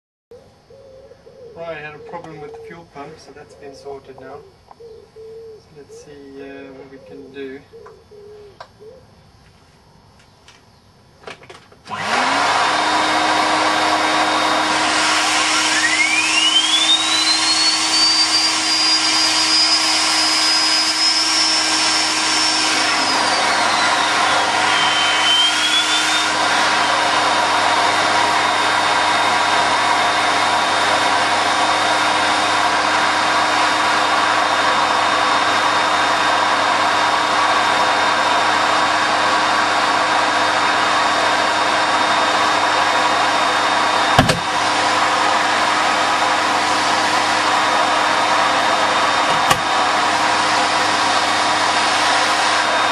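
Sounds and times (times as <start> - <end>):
turbo whine: 11.8 - 35.9, 41.7 - 52.9
jet engine loud rush: 11.9 - 52.9.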